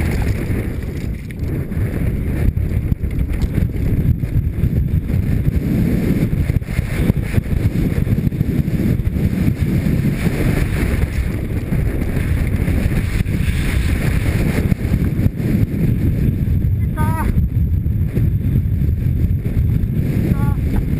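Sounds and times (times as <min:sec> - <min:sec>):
bike knocking over rough ground: 0:00.0 - 0:01.6, 0:02.4 - 0:04.4
wind buffeting microphone: 0:00.0 - 0:20.9.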